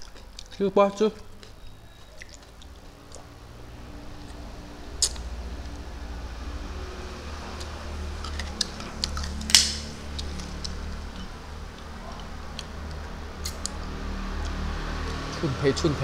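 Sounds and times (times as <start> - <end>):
mouth clicks and lip smacks: 1.2 - 3.3, 5.0 - 5.8, 11.7 - 15.3.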